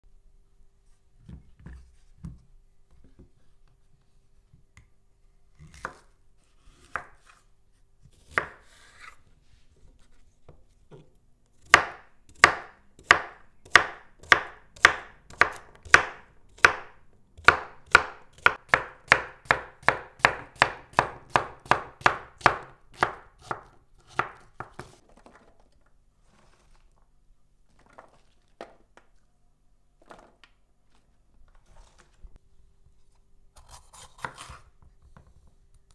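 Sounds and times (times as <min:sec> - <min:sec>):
knife chopping on wooden board: 0:08.2 - 0:08.6, 0:11.6 - 0:25.0.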